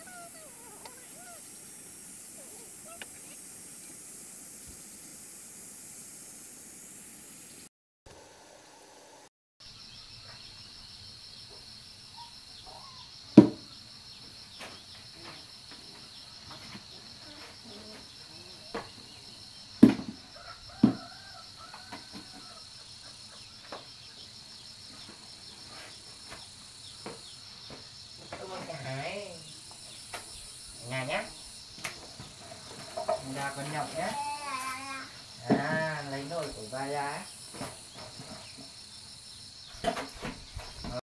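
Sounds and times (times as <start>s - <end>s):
insects chirring: 0.0s - 41.0s
sharp knocks: 13.4s - 13.7s, 19.8s - 20.2s.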